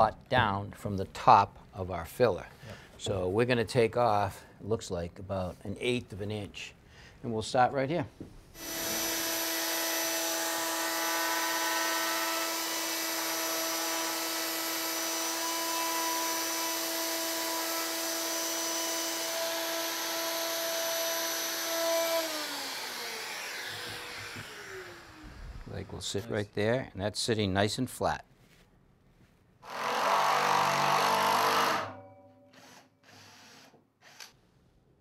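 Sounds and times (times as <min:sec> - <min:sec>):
plunge router running: 0:08.6 - 0:25.6.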